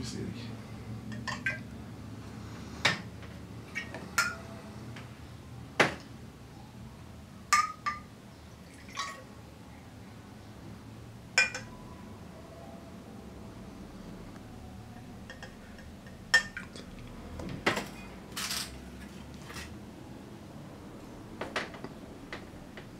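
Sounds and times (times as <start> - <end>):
glassware clinking: 1.1 - 1.7, 3.7 - 4.4, 7.5 - 8.1, 8.8 - 9.2, 11.4 - 11.8, 15.2 - 16.9.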